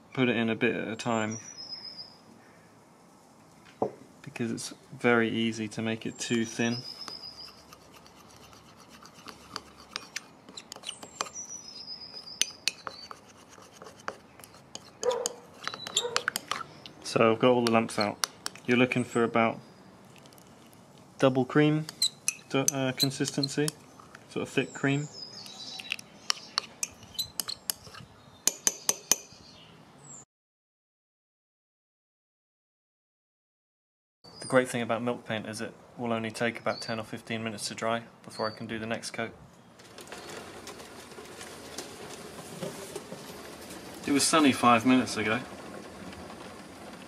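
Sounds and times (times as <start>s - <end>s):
teaspoon stirring in china cup: 6.3s - 16.6s, 21.9s - 23.8s, 25.4s - 29.2s.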